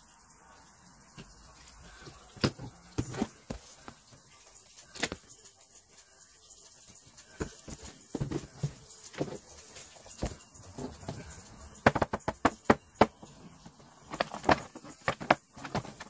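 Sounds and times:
boxes knocking on desk: 7.4 - 9.4, 11.0 - 13.4, 14.1 - 16.0.

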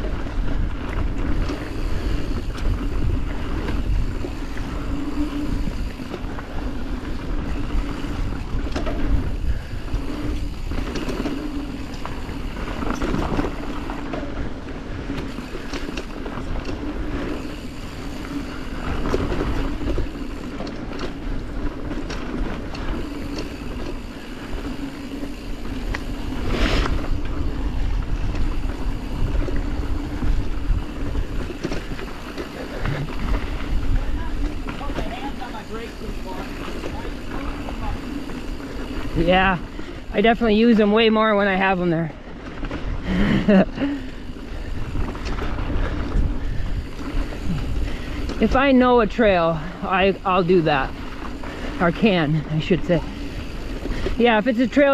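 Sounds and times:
wind rushing over microphone: 0.0 - 13.7, 24.7 - 35.2, 44.2 - 49.0
tyres rumbling on dirt: 0.0 - 54.9
bike knocks and rattles: 1.0 - 38.9.

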